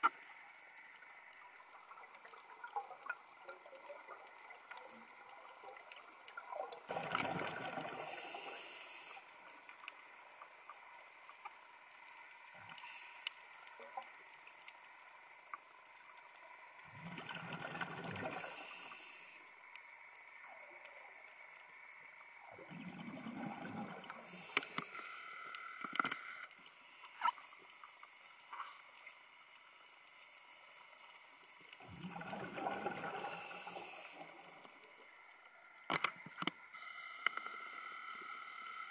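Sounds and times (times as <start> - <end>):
faint clicks: 0.0 - 16.8, 17.9 - 38.2
bubbling exhalations underwater: 6.9 - 8.1, 16.9 - 18.4, 22.6 - 24.2, 31.8 - 33.3.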